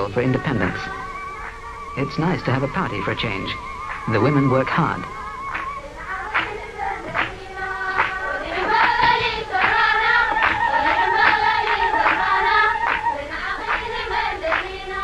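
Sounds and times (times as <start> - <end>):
wavering high trill: 0.0 - 13.7
drum beating steadily: 0.0 - 14.0
women singing together: 5.1 - 15.0.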